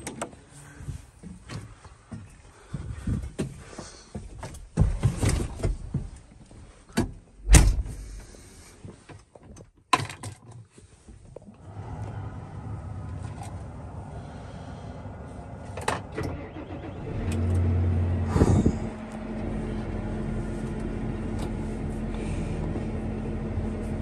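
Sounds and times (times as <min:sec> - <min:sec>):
heavy thump: 0:07.4 - 0:08.2
tractor engine humming: 0:11.5 - 0:24.0.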